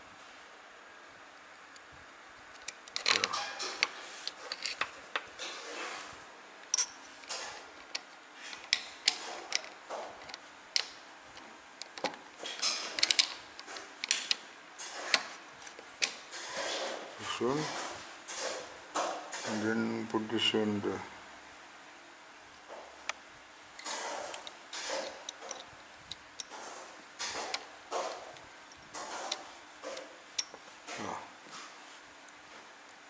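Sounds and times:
small metal parts clicking: 0:06.7 - 0:07.0, 0:11.8 - 0:14.4, 0:24.8 - 0:25.7.

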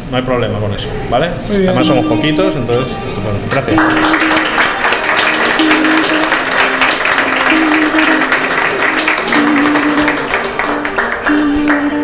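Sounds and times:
audience applauding: 0:03.5 - 0:12.0
background music: 0:03.6 - 0:12.0.

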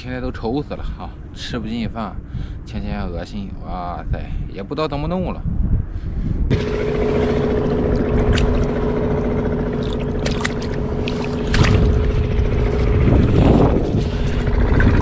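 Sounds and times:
hand splashing muddy water: 0:06.5 - 0:14.6
engine humming: 0:06.5 - 0:15.0.

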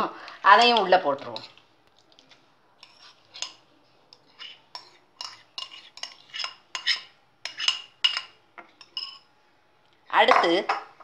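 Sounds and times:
metal spoon clinking on glass bowl: 0:04.4 - 0:09.3.

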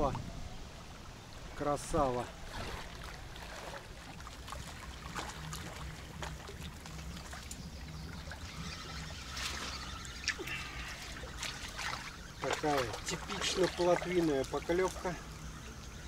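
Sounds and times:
steady low hum: 0:00.0 - 0:16.0
water lapping and trickling: 0:00.0 - 0:16.0.

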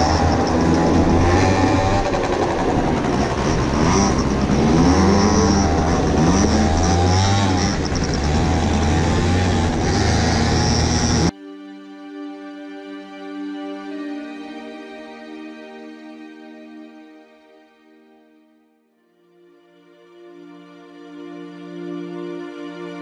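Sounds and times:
small motorcycle engine revving: 0:00.0 - 0:11.3
wind noise: 0:00.0 - 0:11.3.

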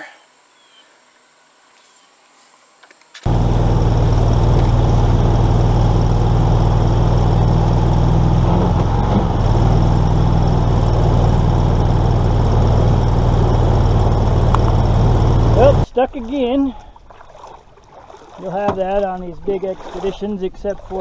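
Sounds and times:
boat motor drone: 0:03.3 - 0:16.0.

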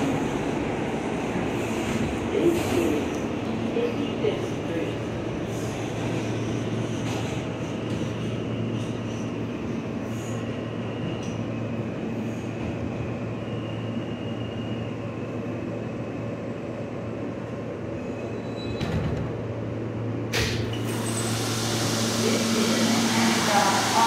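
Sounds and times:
subway train wheels rumbling: 0:00.0 - 0:24.0
train brake hiss: 0:20.4 - 0:24.0.

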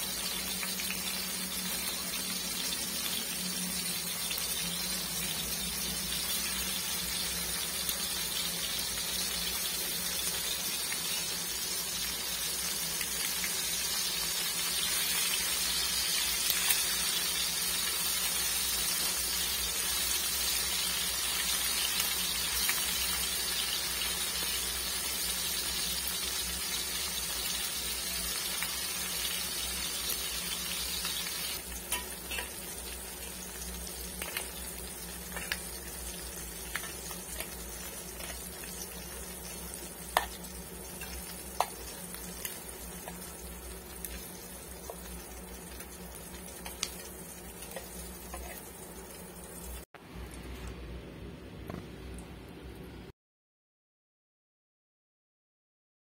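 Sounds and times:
fish frying in oil: 0:00.0 - 0:49.9.

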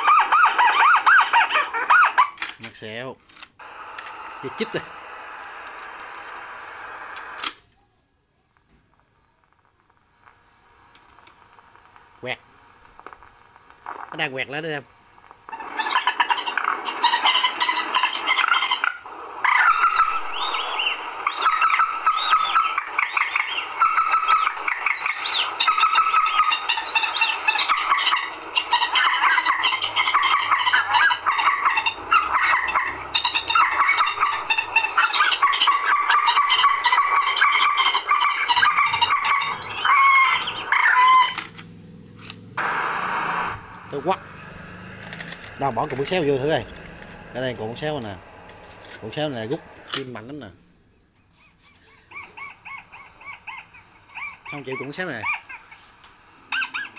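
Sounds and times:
recorded bird chirping calls: 0:09.6 - 0:10.5, 0:15.5 - 0:41.4, 0:45.4 - 0:56.9.

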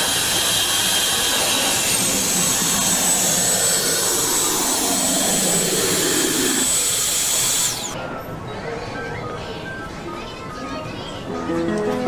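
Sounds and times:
vending machine motor whirring: 0:00.0 - 0:08.0.

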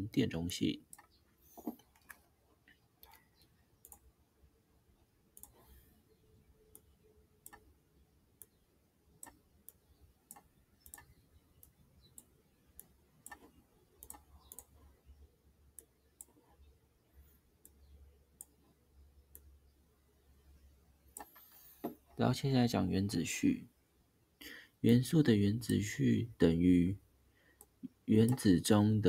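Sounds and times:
mouse clicks: 0:00.8 - 0:04.1, 0:05.3 - 0:05.8, 0:06.7 - 0:07.7, 0:08.4 - 0:08.6, 0:09.2 - 0:14.9, 0:17.6 - 0:18.6, 0:19.3 - 0:19.5.

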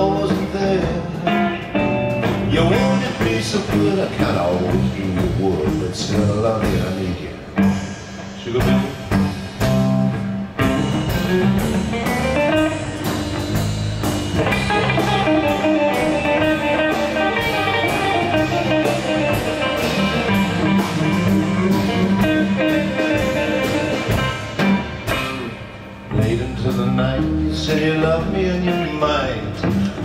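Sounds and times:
electric guitar lead: 0:00.0 - 0:05.8, 0:06.6 - 0:30.0
drum kit beat: 0:00.0 - 0:30.0
electric bass: 0:00.0 - 0:30.0.

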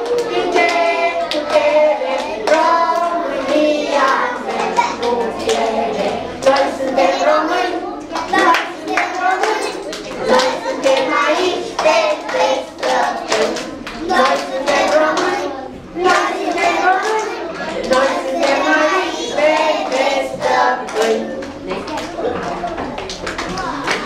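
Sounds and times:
children singing together: 0:00.0 - 0:21.6
hand claps: 0:08.1 - 0:15.3, 0:20.9 - 0:24.0.

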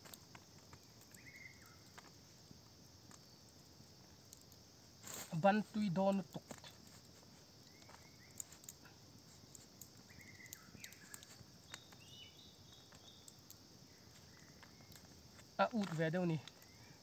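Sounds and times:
faint whistled bird calls: 0:01.1 - 0:01.8, 0:10.0 - 0:13.3, 0:16.6 - 0:17.0.

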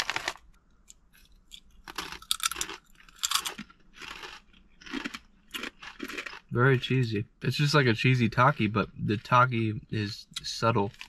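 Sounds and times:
chips crunching while chewed: 0:00.0 - 0:00.5, 0:01.2 - 0:06.5, 0:10.4 - 0:11.0.

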